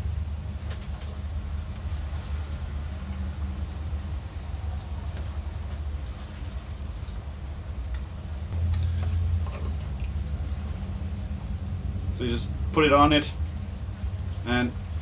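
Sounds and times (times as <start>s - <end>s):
high squeal of plastic: 4.5s - 7.6s
low machine hum: 7.2s - 15.0s.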